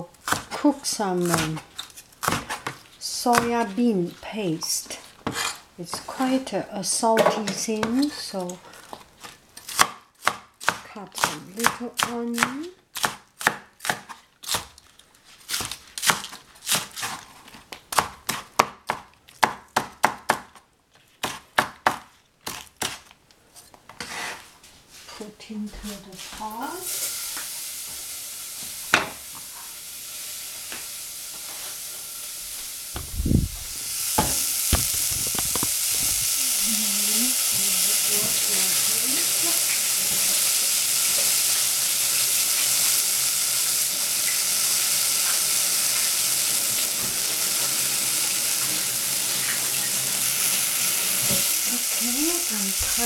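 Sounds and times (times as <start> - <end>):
onions sizzling in a saucepan: 0.0 - 18.4, 26.1 - 53.0
knocks and thump: 33.0 - 36.3.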